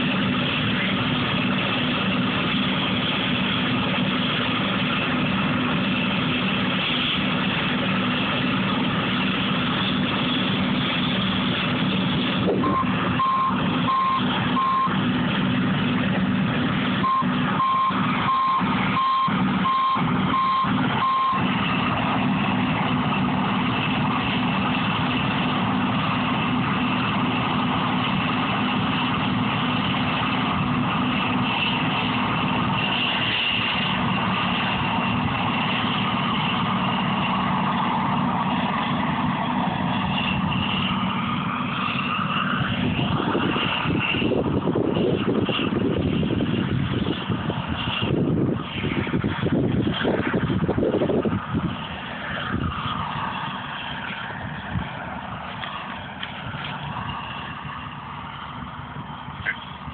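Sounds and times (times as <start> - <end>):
heavy engines running: 0.0 - 59.9
backup alarm beeping: 12.6 - 15.0, 17.0 - 21.4.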